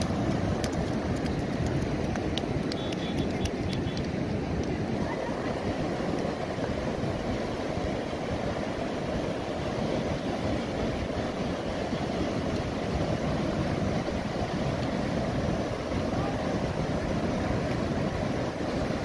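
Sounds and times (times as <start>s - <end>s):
rough sea surf: 0.0s - 19.0s
wind buffeting microphone: 0.0s - 19.0s.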